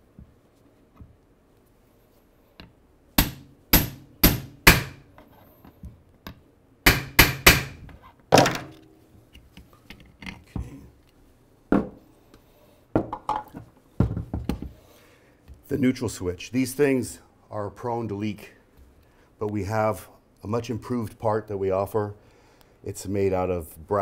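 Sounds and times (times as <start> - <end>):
hammer tapping on metal tool: 2.6 - 5.0, 6.3 - 7.8.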